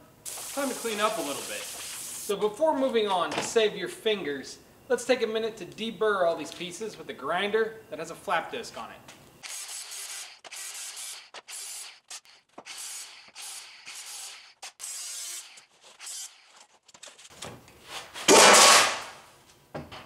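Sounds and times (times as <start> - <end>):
angle grinder rasping on steel: 9.4 - 16.8
steel piece crashing on floor: 18.3 - 19.2.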